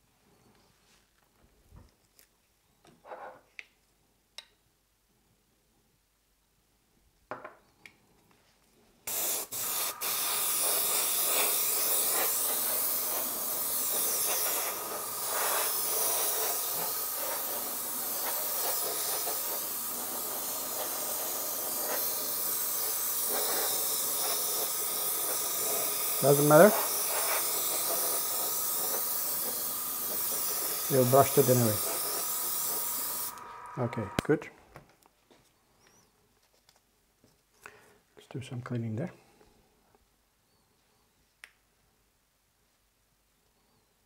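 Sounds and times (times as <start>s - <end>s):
airbrush spraying air hiss: 9.1s - 34.3s.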